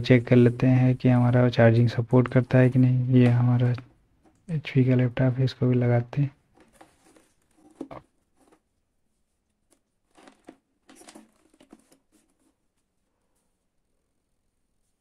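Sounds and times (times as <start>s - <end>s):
soft rustles and small taps: 6.5s - 13.6s.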